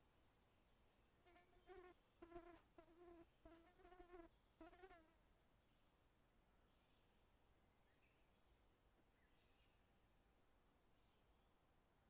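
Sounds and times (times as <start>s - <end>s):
insect buzzing: 1.2s - 5.2s.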